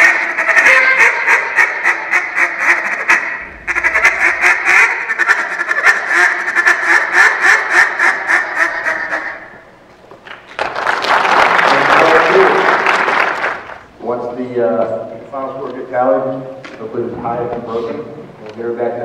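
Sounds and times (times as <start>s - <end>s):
duck call quacks: 0.0s - 9.6s.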